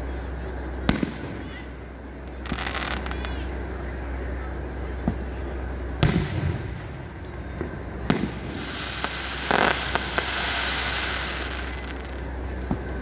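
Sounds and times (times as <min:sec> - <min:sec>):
firework shells bursting: 0:08.0 - 0:12.2
hissing crackle with pops: 0:08.1 - 0:12.3.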